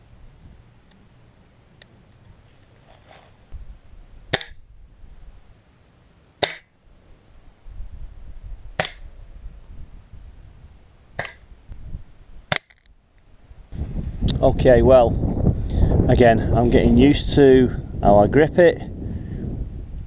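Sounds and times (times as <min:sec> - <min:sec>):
air pistol shots: 0:04.3 - 0:04.6, 0:06.4 - 0:06.7, 0:08.8 - 0:09.1, 0:11.2 - 0:11.4.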